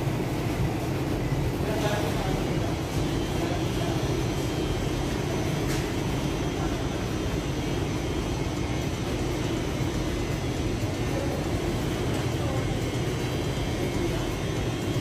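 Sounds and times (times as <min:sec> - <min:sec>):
supermarket background rumble: 0:00.0 - 0:15.0.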